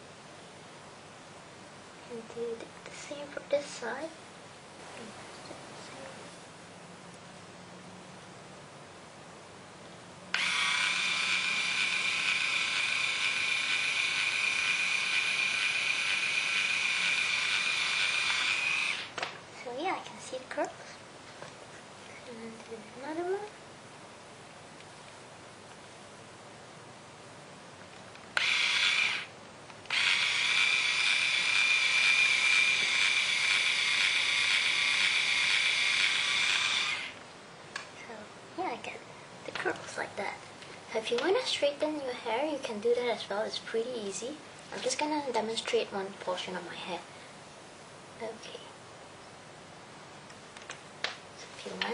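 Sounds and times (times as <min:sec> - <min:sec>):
small electric motor whine: 0:10.3 - 0:19.2, 0:28.4 - 0:29.3, 0:29.9 - 0:37.2.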